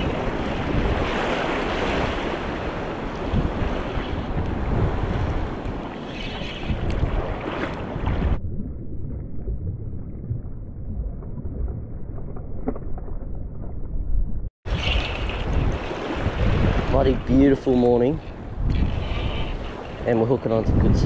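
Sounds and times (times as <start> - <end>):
small waves washing on shore: 0.0 - 8.4, 14.7 - 20.2
wind buffeting microphone: 0.0 - 8.5, 11.0 - 21.0.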